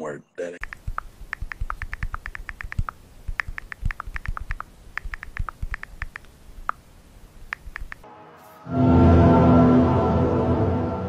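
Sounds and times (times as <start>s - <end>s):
fast typing on keyboard: 0.6s - 6.8s, 7.4s - 8.0s.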